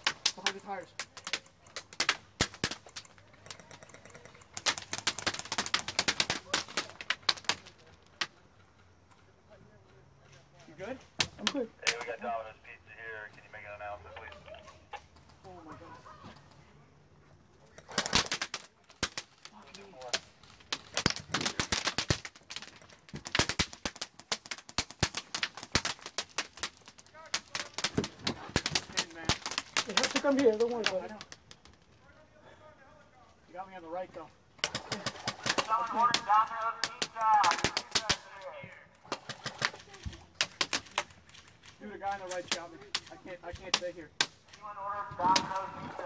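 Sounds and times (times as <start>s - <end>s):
airsoft guns firing: 0.0s - 7.7s, 17.8s - 31.4s, 34.5s - 46.0s.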